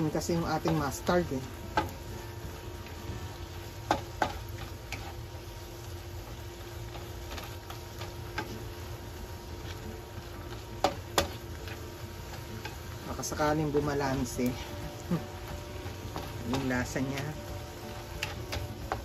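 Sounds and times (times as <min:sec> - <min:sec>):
faint sizzle: 0:00.0 - 0:19.0
spatula scraping frying pan: 0:03.9 - 0:05.4, 0:06.8 - 0:08.7, 0:10.4 - 0:13.4, 0:14.2 - 0:19.0.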